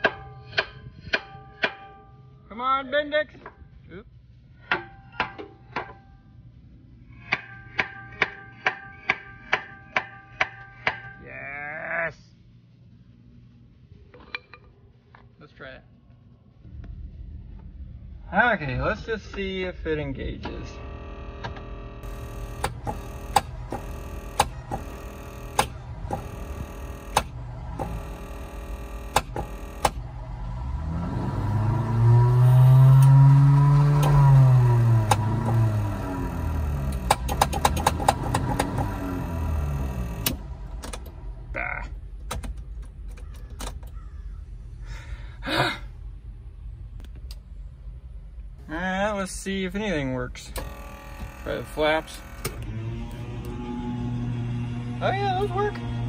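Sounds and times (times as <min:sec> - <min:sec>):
hammer tapping on metal: 0:07.3 - 0:11.2
starter motor whirring: 0:20.4 - 0:44.2, 0:50.4 - 0:56.0
sharp clicks: 0:21.4 - 0:30.0, 0:33.8 - 0:41.2.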